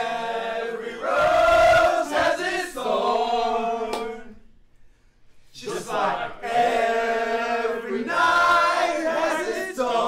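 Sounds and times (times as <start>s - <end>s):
men singing without instruments: 5.6s - 10.0s.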